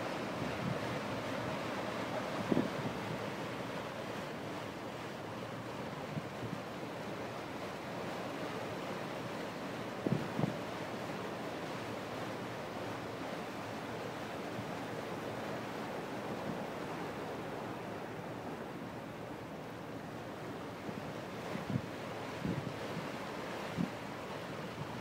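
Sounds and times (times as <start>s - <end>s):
rush of wind and water: 0.0s - 25.0s
wind buffeting the microphone: 2.2s - 3.3s, 10.0s - 10.6s, 21.5s - 25.0s.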